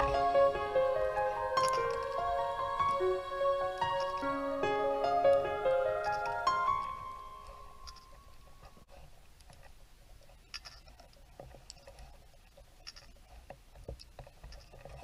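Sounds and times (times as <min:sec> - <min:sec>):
background music note: 0:00.0 - 0:08.6
underwater clicks and ticks: 0:06.0 - 0:15.0.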